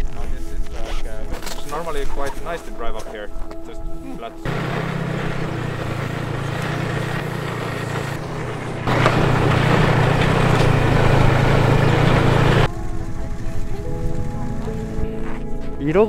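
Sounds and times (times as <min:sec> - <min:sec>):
snowmobile engine running: 0:04.4 - 0:15.2.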